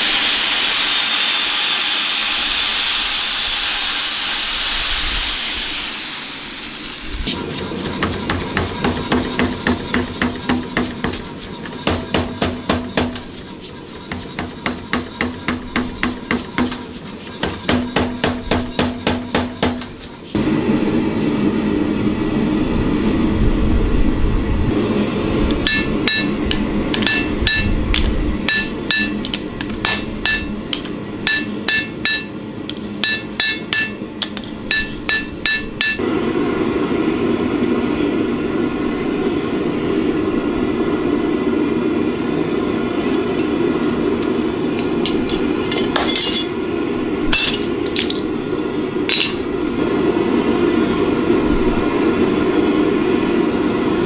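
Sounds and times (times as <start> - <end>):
hammer striking blade on anvil: 7.3 - 20.2, 25.5 - 36.0, 43.0 - 46.6, 47.3 - 48.2.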